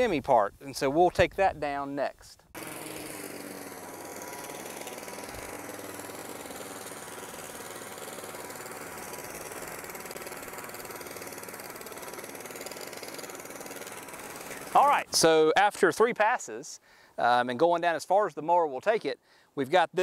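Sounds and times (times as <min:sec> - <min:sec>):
lawn mower running: 0:02.5 - 0:15.8.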